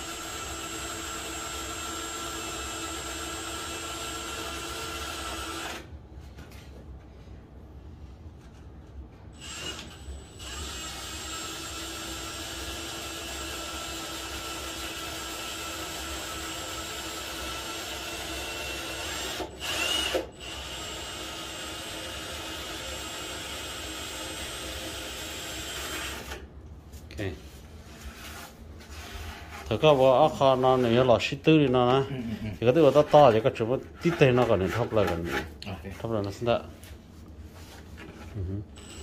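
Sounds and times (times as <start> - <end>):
cordless drill grinding into foam: 9.4 - 26.4, 38.8 - 39.0.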